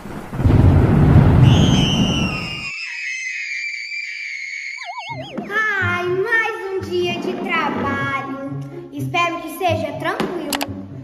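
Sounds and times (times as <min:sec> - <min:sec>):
downward sliding whistle tone: 0:01.4 - 0:05.6.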